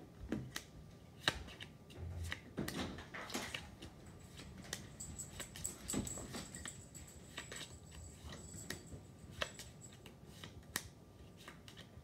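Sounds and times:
playing cards clicking and snapping: 0.3 - 5.6, 7.3 - 8.3, 9.3 - 12.0.

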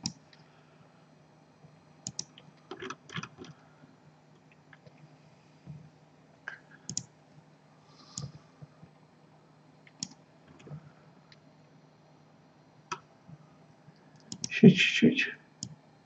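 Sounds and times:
faint steady low hum: 0.0 - 16.0
computer mouse clicking: 2.0 - 3.5, 6.9 - 7.1, 8.2 - 8.4, 9.9 - 10.7, 14.1 - 14.5.

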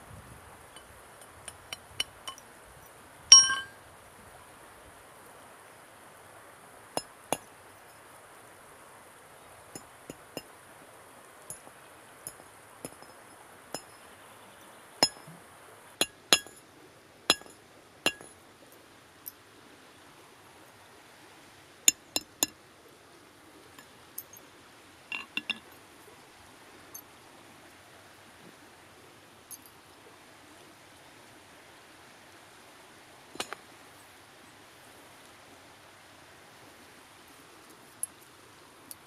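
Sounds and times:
stream rushing: 0.0 - 14.2, 14.8 - 39.0
sharp metallic clinks: 0.7 - 2.5, 3.3 - 3.8, 9.7 - 10.5, 11.5 - 14.1, 15.0 - 15.4, 16.0 - 16.6, 17.3 - 18.4, 23.8 - 24.4, 25.1 - 25.8.

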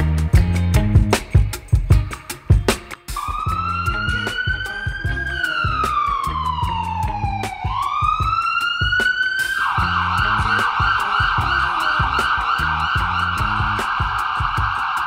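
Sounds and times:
music with steady beat: 0.0 - 15.0
siren wailing and yelping: 3.2 - 15.0.

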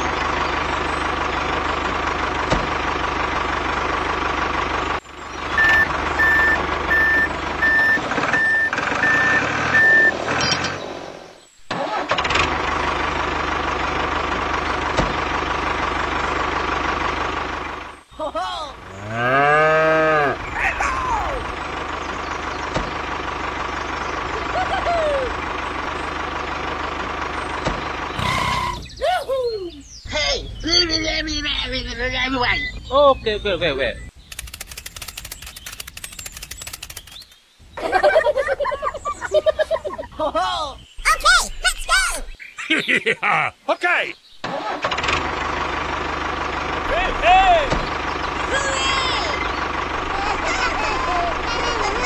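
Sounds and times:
vehicle engine running: 0.0 - 11.4, 12.0 - 29.0, 29.8 - 40.1, 44.8 - 52.0
reversing alarm beeping: 5.6 - 10.2.

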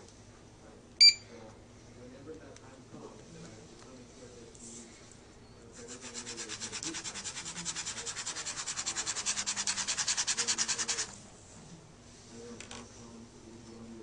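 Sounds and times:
pen scribbling on paper: 5.9 - 11.1.

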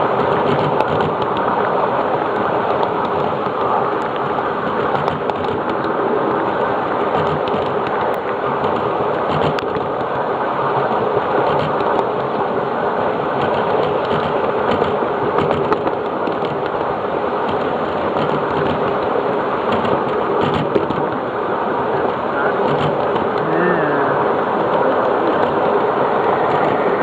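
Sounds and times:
miniature train running on track: 22.0 - 27.0.

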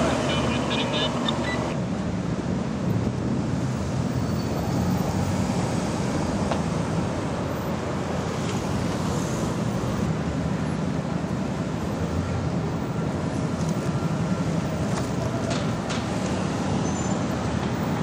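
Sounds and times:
city street traffic: 0.0 - 18.0.

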